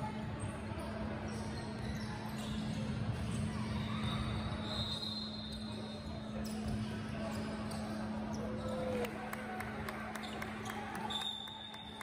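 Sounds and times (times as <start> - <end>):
faint high squeak: 0.4 - 8.8.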